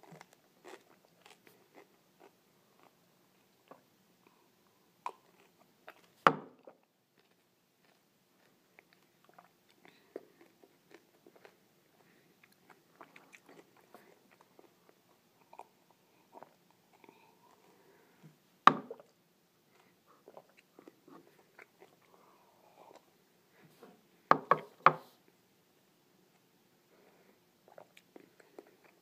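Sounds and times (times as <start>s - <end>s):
person chewing: 0.0s - 4.4s, 5.0s - 17.9s, 18.9s - 23.2s, 27.7s - 29.0s.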